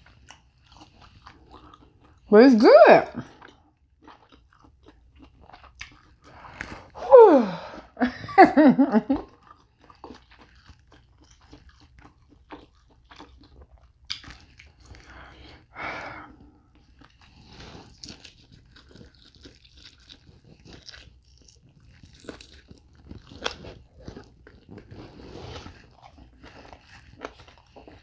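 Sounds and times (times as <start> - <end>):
person chewing: 0.0 - 2.3, 3.2 - 8.0, 9.0 - 28.0
person humming mmm: 7.0 - 8.0.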